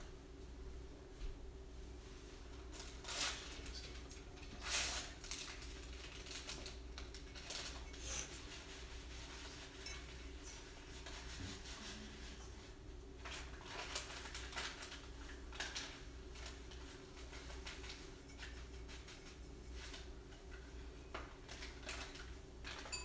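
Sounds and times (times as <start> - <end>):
paintbrush scratchy strokes: 7.7 - 12.8, 17.0 - 20.2.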